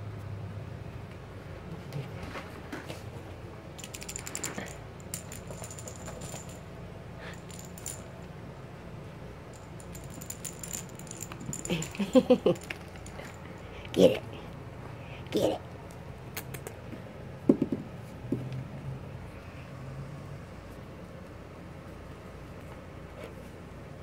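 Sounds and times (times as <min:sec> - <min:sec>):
jingle bell toy jingling: 0:03.8 - 0:06.7, 0:07.3 - 0:08.2, 0:09.6 - 0:13.7.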